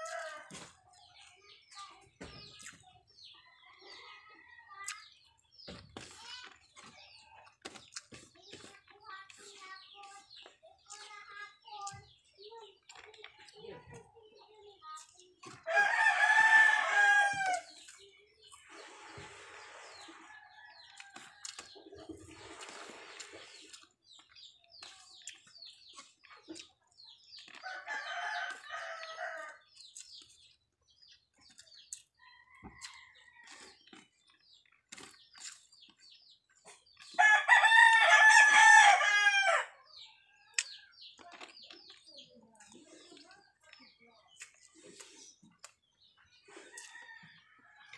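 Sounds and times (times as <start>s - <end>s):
rooster crowing: 37.2s - 39.7s.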